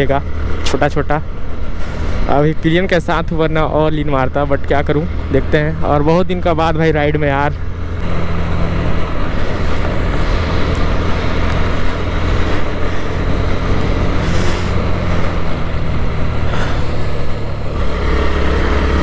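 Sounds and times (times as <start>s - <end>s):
motorcycle engine running: 5.1s - 19.0s.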